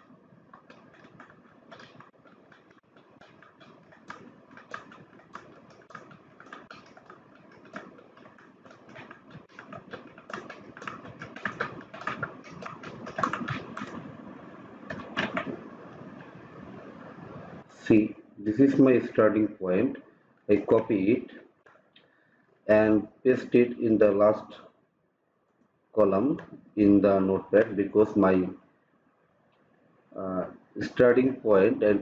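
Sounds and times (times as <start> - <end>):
keyboard keys clicking: 0.0 - 16.6.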